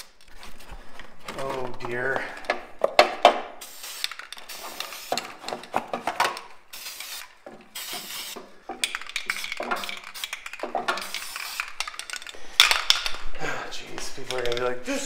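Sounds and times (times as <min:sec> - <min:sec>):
aerosol spray can hissing: 0:03.6 - 0:05.3, 0:06.7 - 0:08.4, 0:09.2 - 0:12.0.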